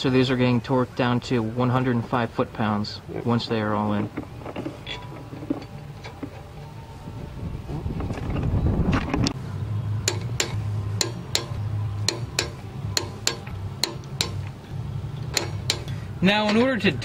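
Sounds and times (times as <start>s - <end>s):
socket ratchet clicking: 10.0s - 14.5s, 15.2s - 15.9s.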